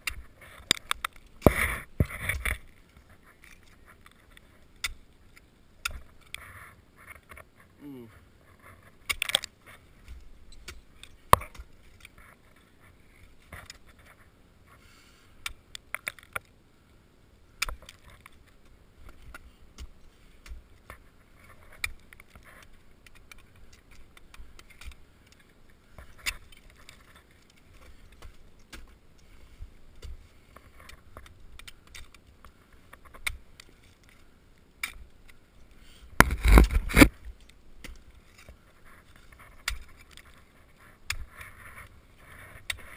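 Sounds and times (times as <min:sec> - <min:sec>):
ice axes striking ice: 0:36.2 - 0:38.5.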